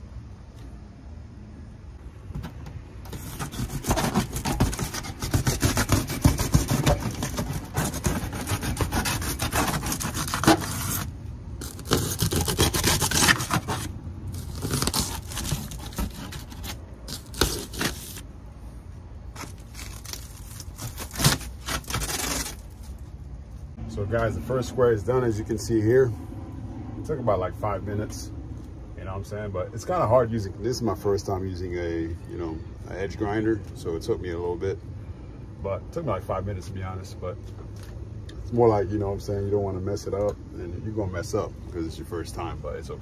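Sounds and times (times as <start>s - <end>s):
blade scraping and cutting: 3.0s - 18.2s, 19.3s - 23.0s.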